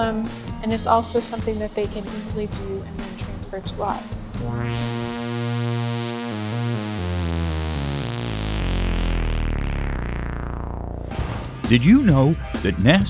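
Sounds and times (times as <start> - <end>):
synthesizer jingle: 2.8 - 11.2.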